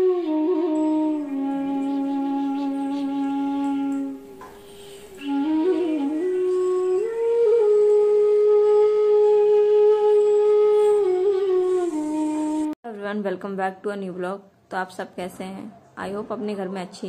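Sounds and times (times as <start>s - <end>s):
flute playing slow melody: 0.0s - 12.8s.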